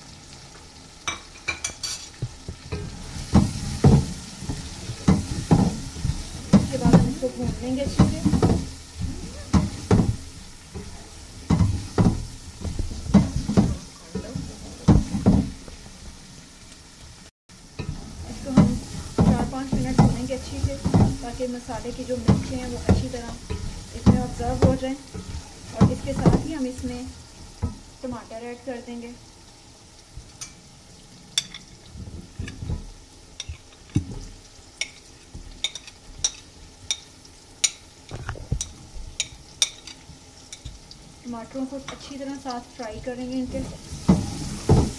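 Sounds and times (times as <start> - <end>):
food sizzling: 0.0 - 44.9.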